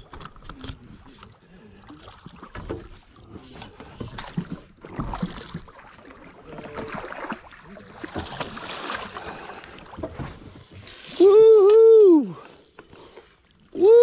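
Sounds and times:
water splashing: 0.0s - 14.0s.

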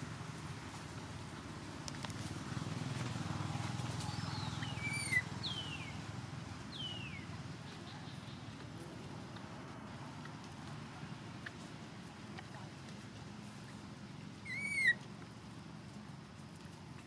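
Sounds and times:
baby monkey squealing: 4.8s - 5.2s, 14.4s - 15.0s.

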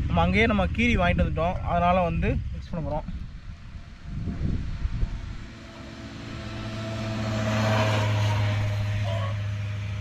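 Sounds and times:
vehicle driving past: 3.5s - 10.0s.

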